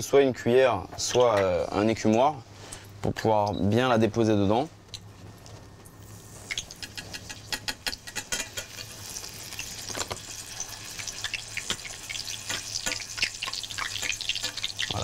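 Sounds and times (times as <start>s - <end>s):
oil crackling and popping: 5.8s - 15.0s.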